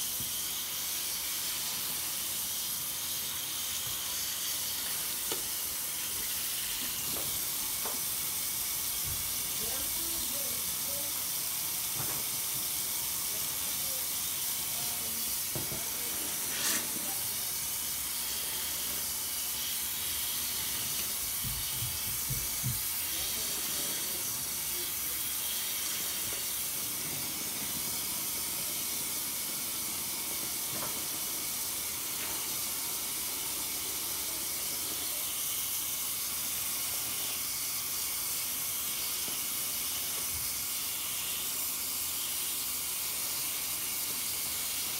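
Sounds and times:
tap water running into sink: 1.4s - 9.6s, 17.8s - 23.4s.

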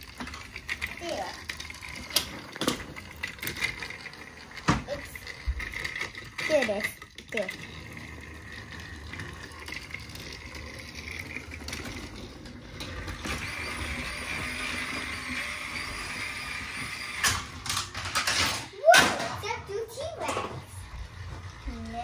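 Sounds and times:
toy train clatter: 0.0s - 22.0s
toy train whirring: 0.0s - 22.0s.

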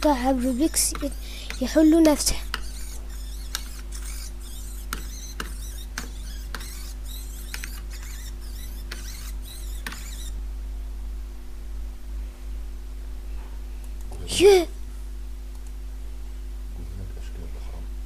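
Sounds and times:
robotic cube motor whirs and clicks: 2.4s - 10.4s.

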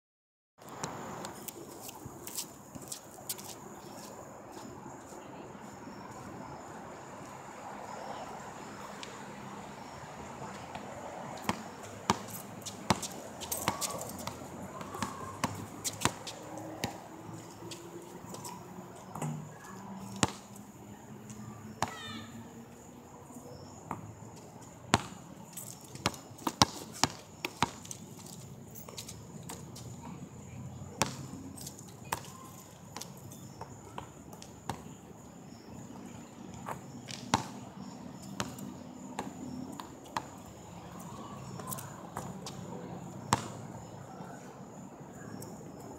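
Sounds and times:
basketball bouncing on asphalt: 9.8s - 17.7s, 18.4s - 20.5s, 24.9s - 25.3s, 25.9s - 27.8s, 31.0s - 31.3s, 33.0s - 34.9s, 36.5s - 40.4s, 43.2s - 43.6s.

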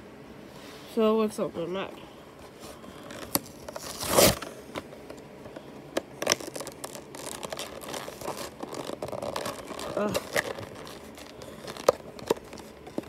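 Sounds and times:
card and plastic crackling: 2.4s - 13.0s
cardboard tearing: 2.9s - 4.5s, 6.2s - 13.0s.

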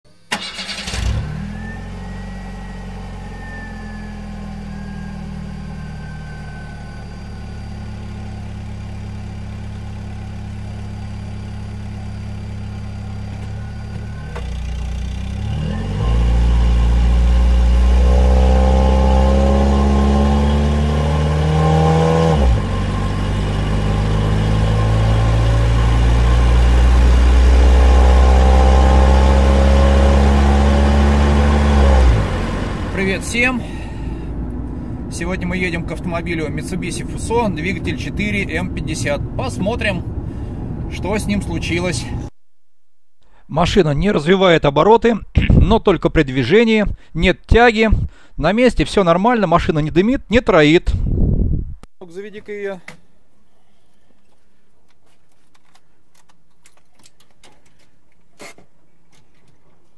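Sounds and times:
motor vehicle engine revving: 0.4s - 42.3s.

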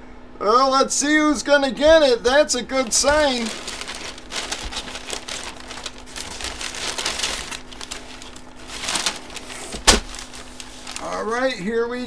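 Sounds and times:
faint steady hum: 0.0s - 12.0s
paper packaging rustling and crinkling: 2.7s - 11.4s.

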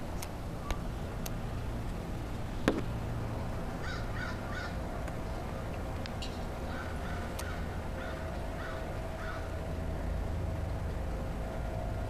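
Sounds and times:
steady low rumble: 0.0s - 12.0s
crow cawing: 3.8s - 4.8s, 6.7s - 9.5s.

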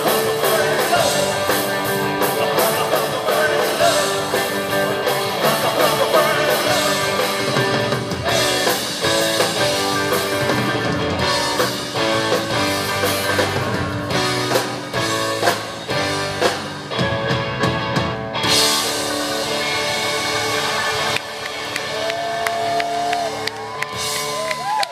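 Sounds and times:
person singing: 0.0s - 9.1s
drum kit: 0.0s - 24.9s
electric guitars: 0.0s - 24.9s.

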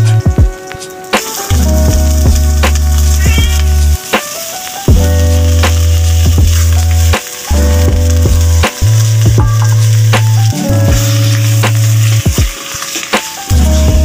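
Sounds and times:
background music with bass notes: 0.0s - 14.0s
chicken frying in a steel pot: 0.0s - 14.0s.

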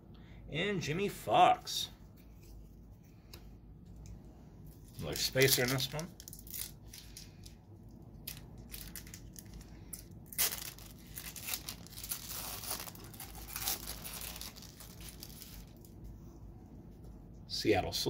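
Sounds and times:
foil wrappers crinkling and tearing: 5.0s - 7.6s, 8.2s - 15.9s.

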